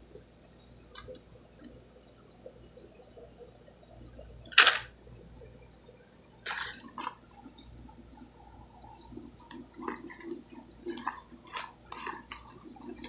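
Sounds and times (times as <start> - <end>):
plastic blister pack rustling: 6.4 - 7.2, 9.4 - 13.0.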